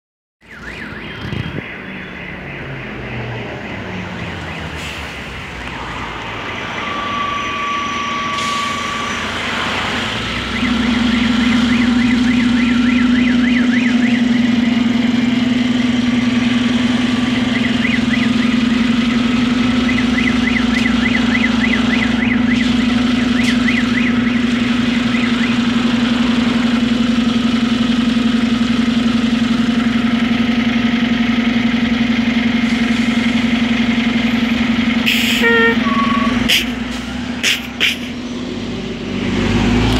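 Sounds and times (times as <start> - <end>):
bus approaching: 0.4 - 39.9
bus engine idling: 4.8 - 39.9
bus brake squeal: 6.6 - 10.2, 35.1 - 38.2.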